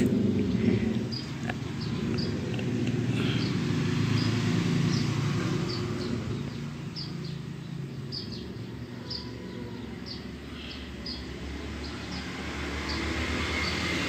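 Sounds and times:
small birds chirping: 0.0 - 14.0.

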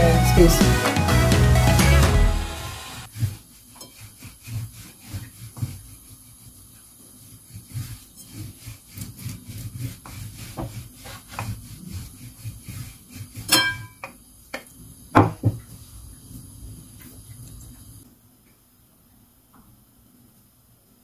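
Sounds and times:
rolling pin rubbing on dough: 3.1 - 15.0.

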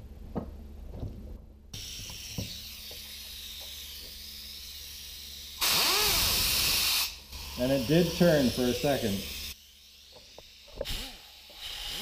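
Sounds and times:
compressed air hissing: 1.8 - 9.6, 10.7 - 12.0
motor whine: 1.8 - 12.0
loud air burst: 5.6 - 8.0, 10.8 - 12.0.

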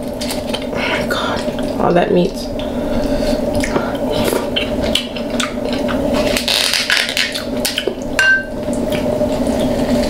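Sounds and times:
steady low hum: 0.0 - 10.0
crab shells cracking and clicking: 4.6 - 8.0.

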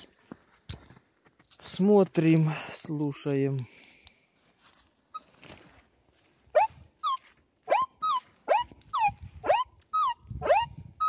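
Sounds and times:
metal detector chirps: 6.6 - 10.7.

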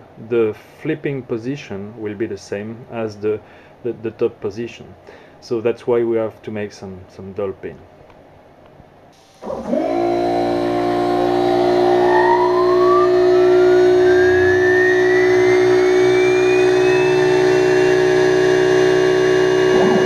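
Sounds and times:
machine hum: 9.2 - 20.0
spindle whine rising: 9.2 - 20.0.

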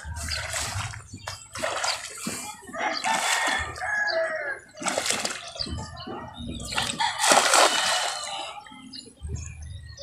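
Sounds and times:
net splashing into water: 0.2 - 2.3, 4.8 - 5.5, 6.8 - 8.3.

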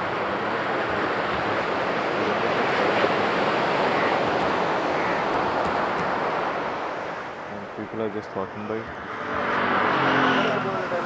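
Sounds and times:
surf washing on sandy beach: 0.0 - 8.6.

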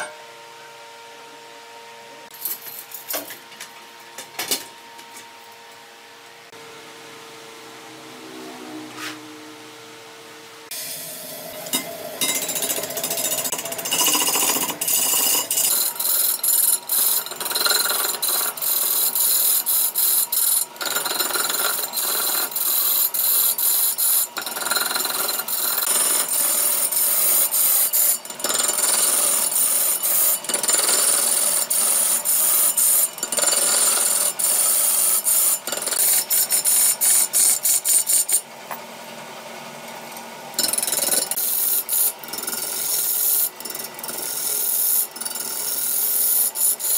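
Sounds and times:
lathe tool scraping wood: 12.3 - 38.4, 40.6 - 46.9.

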